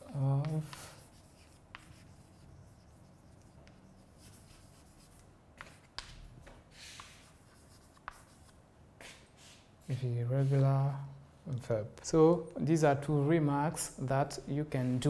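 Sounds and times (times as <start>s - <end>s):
chalk clicks on board: 0.0s - 2.2s, 3.3s - 10.6s
chalk scraping on blackboard: 0.1s - 10.8s.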